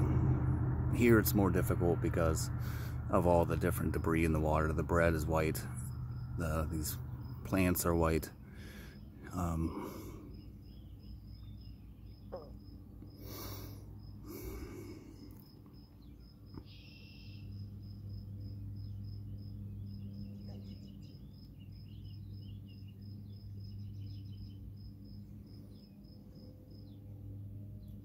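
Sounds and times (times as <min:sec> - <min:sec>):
faint low hum: 0:00.0 - 0:28.0
insect chirping: 0:05.6 - 0:27.0.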